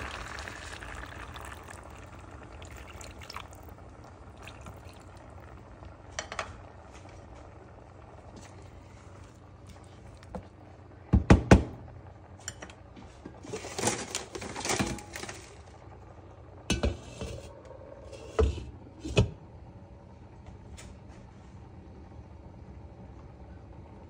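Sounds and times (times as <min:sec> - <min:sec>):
wooden spoon knocking on pan: 0:11.1 - 0:11.8.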